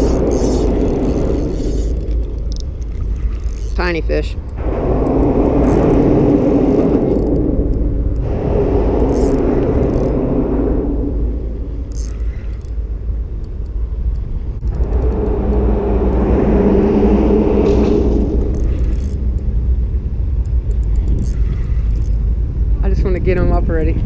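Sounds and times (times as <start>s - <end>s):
fishing reel clicking: 0.0s - 6.0s, 6.6s - 8.3s, 9.0s - 10.2s, 11.8s - 12.8s, 18.5s - 19.5s, 20.7s - 22.2s
road traffic rumble: 0.0s - 24.0s
vehicle hum: 0.0s - 24.0s.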